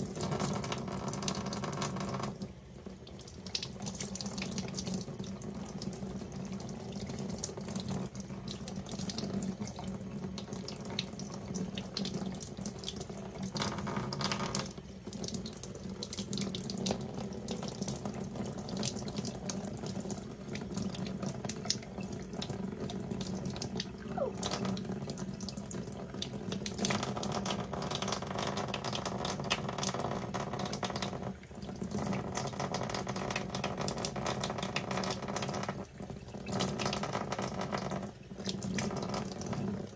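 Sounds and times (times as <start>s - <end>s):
tap water running into sink: 0.0s - 39.9s.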